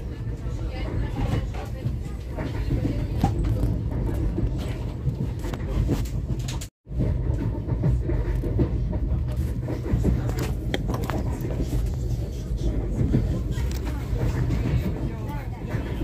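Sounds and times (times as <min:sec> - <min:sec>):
train carriage rumbling on track: 0:00.0 - 0:16.0.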